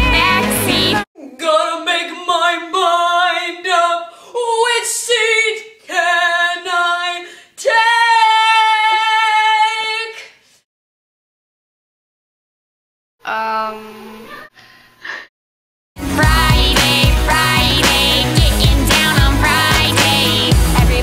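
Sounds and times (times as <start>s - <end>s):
pop music: 0.0s - 1.1s, 16.0s - 21.0s
girl singing unaccompanied: 0.0s - 10.2s, 16.1s - 21.0s.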